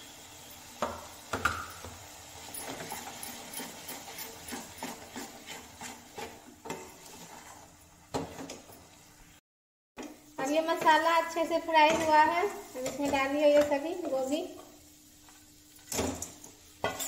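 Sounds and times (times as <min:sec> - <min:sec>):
metal spatula scraping a pan: 0:02.4 - 0:08.7.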